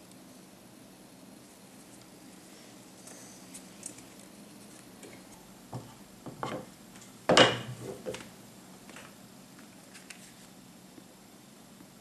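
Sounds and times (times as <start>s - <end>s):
wooden parts knocking on workbench: 5.7s - 6.7s, 7.3s - 8.3s.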